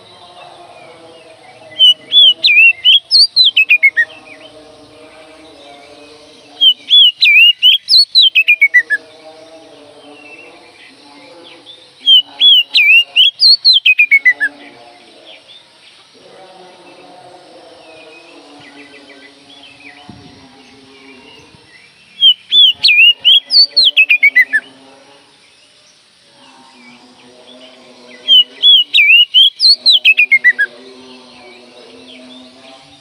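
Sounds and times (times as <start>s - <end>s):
bird singing whistled phrases: 1.7s - 4.1s, 6.6s - 9.0s, 12.0s - 14.5s, 22.2s - 24.6s, 28.3s - 30.7s.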